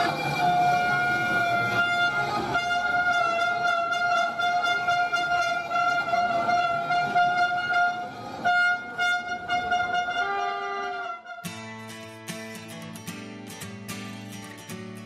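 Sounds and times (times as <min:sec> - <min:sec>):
bagpipes playing: 0:00.0 - 0:11.4
strummed acoustic guitar music: 0:11.3 - 0:15.0.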